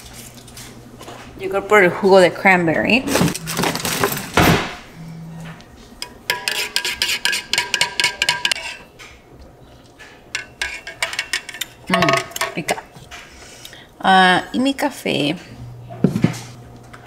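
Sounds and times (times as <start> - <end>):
spoon clinking in a glass: 6.3 - 8.8, 10.4 - 12.6.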